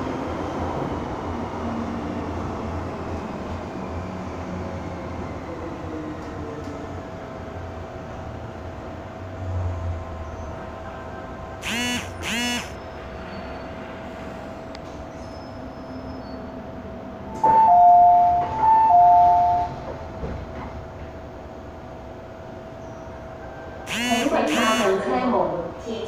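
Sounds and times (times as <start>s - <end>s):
train carriage running noise: 0.0s - 26.0s
short pitched tones: 11.6s - 12.8s, 23.9s - 25.0s.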